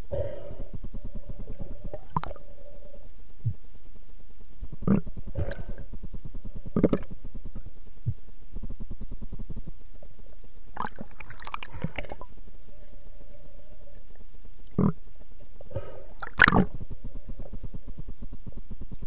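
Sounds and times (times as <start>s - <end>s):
muffled underwater rumble: 0.0s - 19.0s
underwater gurgling bursts: 0.1s - 3.0s, 4.7s - 7.8s, 8.6s - 12.4s, 15.7s - 19.0s.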